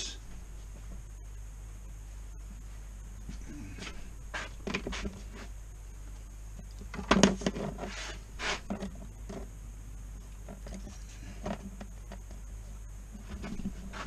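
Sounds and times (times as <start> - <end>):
low hum: 0.0 - 14.0
objects rustling and knocking: 2.4 - 5.6, 6.5 - 9.6, 10.2 - 14.0.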